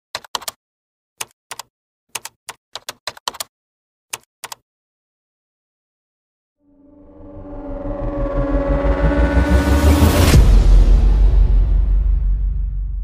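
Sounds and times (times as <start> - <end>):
keyboard typing clicks: 0.2 - 0.6, 1.2 - 3.5, 4.1 - 4.6.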